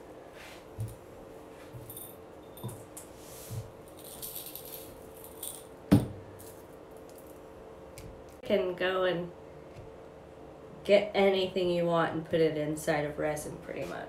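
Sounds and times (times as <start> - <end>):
shells and rocks rattling in bowl: 3.9 - 7.4.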